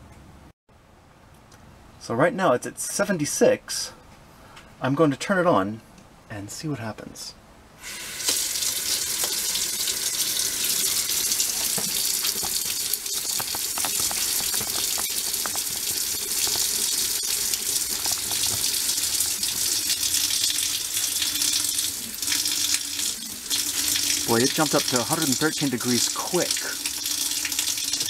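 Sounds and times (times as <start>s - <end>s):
water running from a tap: 7.8s - 28.0s.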